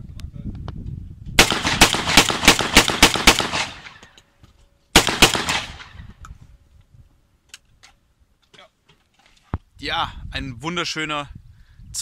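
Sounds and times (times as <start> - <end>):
rapid rifle gunfire: 1.4 - 4.0, 5.0 - 5.9.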